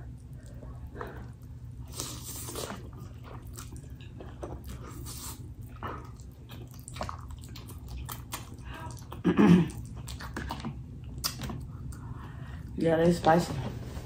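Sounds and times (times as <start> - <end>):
wet chewing and smacking: 0.0 - 12.7
noodle slurping: 4.7 - 5.6.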